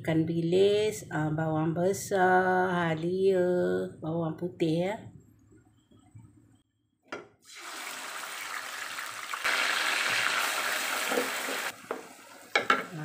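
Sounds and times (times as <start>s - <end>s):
hot oil sizzling in a frying pan: 7.5s - 13.0s.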